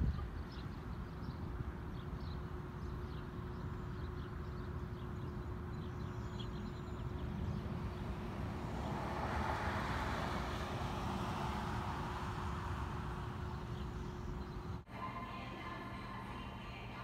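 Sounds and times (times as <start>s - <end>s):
faint constant hum: 0.0s - 8.6s, 11.8s - 17.0s
car driving past: 7.1s - 14.5s.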